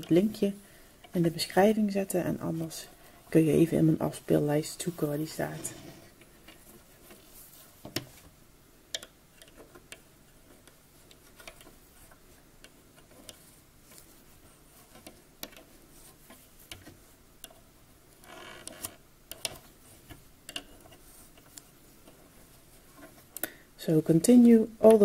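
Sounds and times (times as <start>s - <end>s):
loom hook clicking on plastic pegs: 8.9s - 10.7s.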